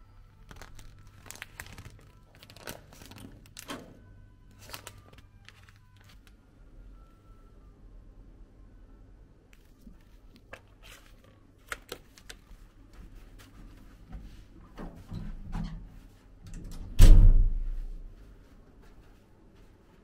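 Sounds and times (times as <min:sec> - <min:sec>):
handling and movement noise: 0:00.5 - 0:06.4, 0:09.6 - 0:16.4.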